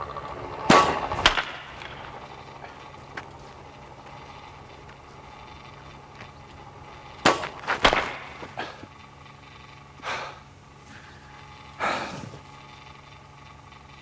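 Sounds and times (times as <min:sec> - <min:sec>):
noisy rushes: 0:00.0 - 0:14.0
baseball bat hits: 0:00.6 - 0:02.0, 0:07.2 - 0:08.5.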